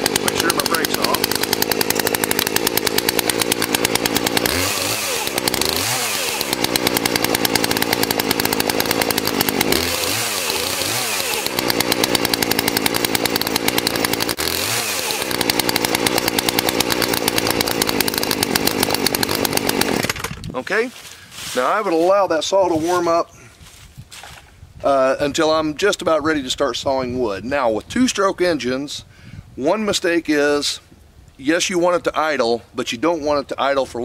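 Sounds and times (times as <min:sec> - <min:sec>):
chainsaw idling: 0:00.0 - 0:20.4.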